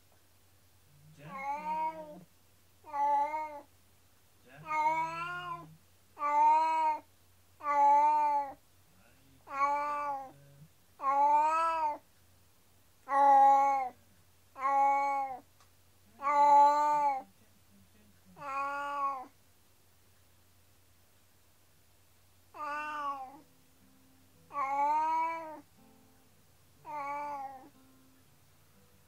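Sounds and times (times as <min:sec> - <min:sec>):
cat meowing plaintively: 0:01.2 - 0:03.7, 0:04.6 - 0:08.6, 0:09.4 - 0:10.4, 0:11.0 - 0:12.0, 0:13.1 - 0:14.0, 0:14.6 - 0:15.4, 0:16.2 - 0:17.3, 0:18.4 - 0:19.3, 0:22.5 - 0:23.4, 0:24.5 - 0:25.7, 0:26.8 - 0:27.7.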